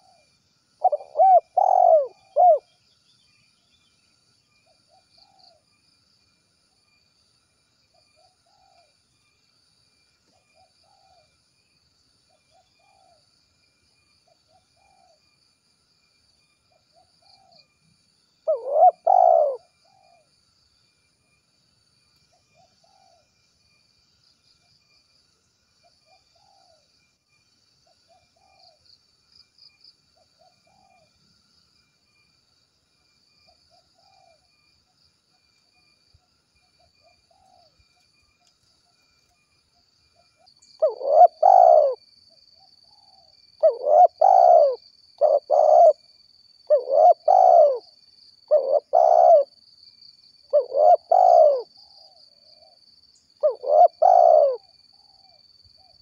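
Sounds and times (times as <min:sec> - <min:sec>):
dove cooing: 0:00.0 - 0:02.7, 0:18.5 - 0:20.3, 0:40.8 - 0:42.0, 0:42.9 - 0:46.1, 0:46.7 - 0:47.9, 0:48.5 - 0:49.5, 0:50.5 - 0:51.7, 0:53.4 - 0:55.9.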